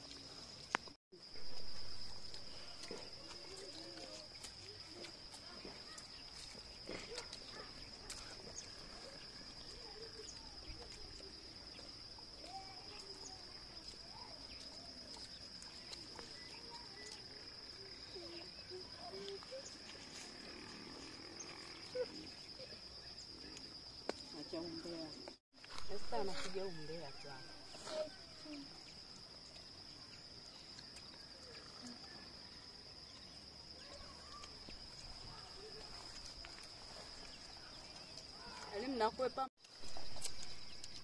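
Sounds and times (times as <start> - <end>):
crickets trilling: 0.0 - 41.0
faint chirps and clicks: 2.3 - 20.4, 27.8 - 41.0.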